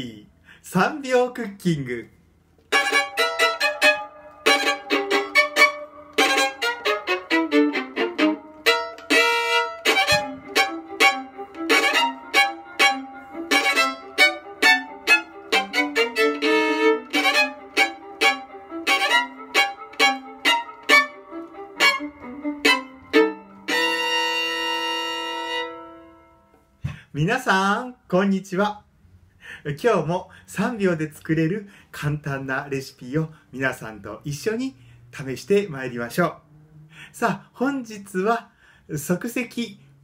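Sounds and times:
solo violin playing quick tune: 0:02.7 - 0:26.2.

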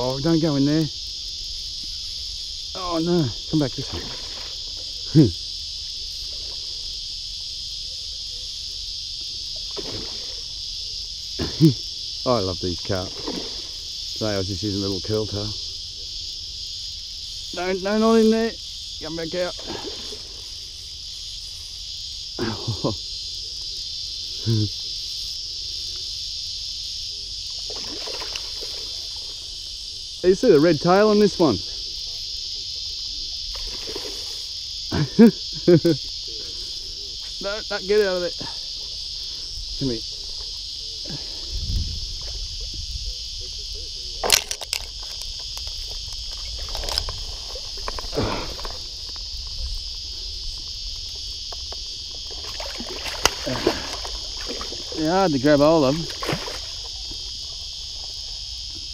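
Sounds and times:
insects buzzing: 0:00.0 - 0:58.9.

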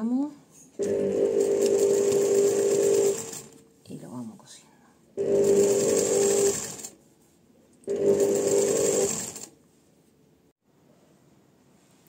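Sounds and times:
sewing machine stitching: 0:00.8 - 0:03.6, 0:05.2 - 0:07.0, 0:07.8 - 0:09.5.

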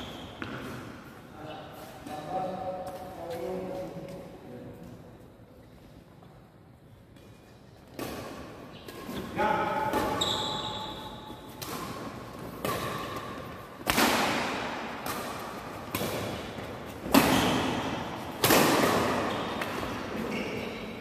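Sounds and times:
rackets striking shuttlecock: 0:07.1 - 0:20.1.

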